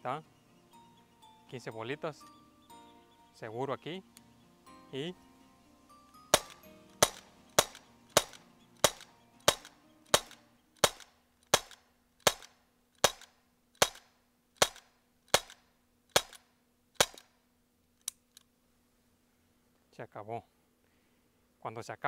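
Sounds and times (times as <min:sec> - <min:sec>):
air pistol shots cracking: 0:06.3 - 0:17.3.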